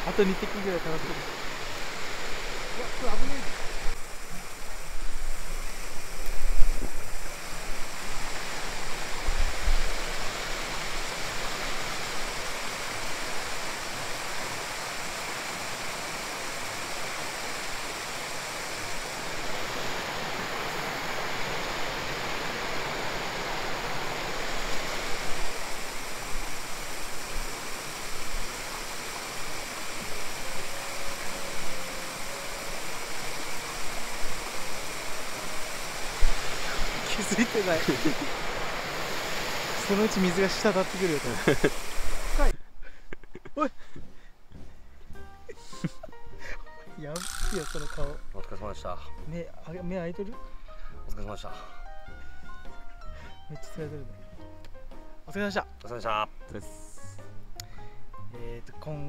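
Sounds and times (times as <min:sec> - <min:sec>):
water rushing over rocks: 0:00.0 - 0:42.5.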